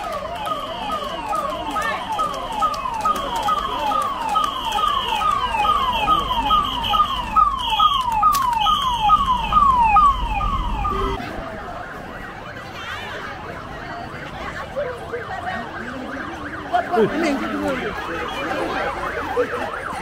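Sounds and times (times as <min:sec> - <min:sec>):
vehicle siren wailing: 0:00.0 - 0:11.2, 0:13.9 - 0:20.0
vehicles passing rumble: 0:00.0 - 0:20.0.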